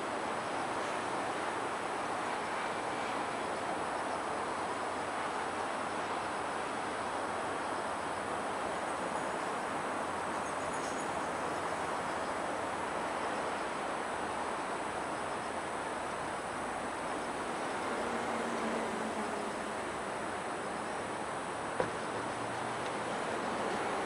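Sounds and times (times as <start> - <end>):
train wheels rolling on rail: 16.0 - 20.8, 21.5 - 24.0.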